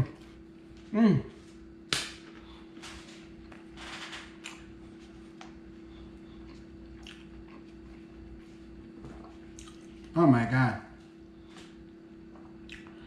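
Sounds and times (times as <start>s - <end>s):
steady low hum: 0.0s - 13.0s
person chewing crispy pizza: 4.3s - 10.2s, 11.3s - 13.0s.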